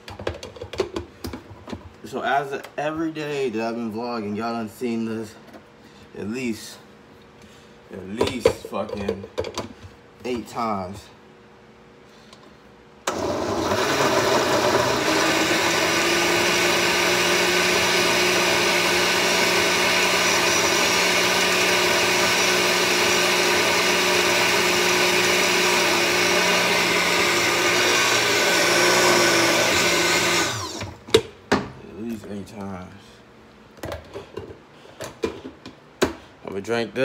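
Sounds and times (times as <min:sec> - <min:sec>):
blender running: 0:13.1 - 0:31.0.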